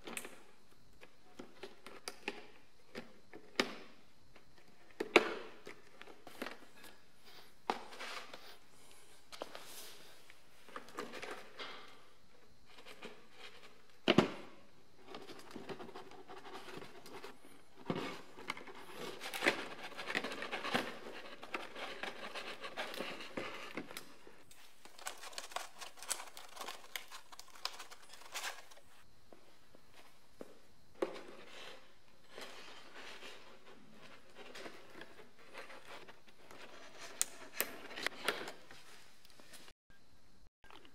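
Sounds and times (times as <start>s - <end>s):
rustling and scraping: 5.5s - 14.0s, 14.9s - 39.7s
plastic bottles knocking and crinkling: 12.9s - 29.0s.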